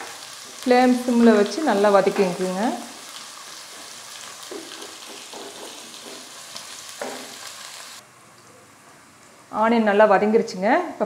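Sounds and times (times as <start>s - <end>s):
onions sizzling in oil: 0.0s - 8.1s
spatula knocking on pan: 3.7s - 7.4s
spatula scraping a pan: 3.7s - 7.4s.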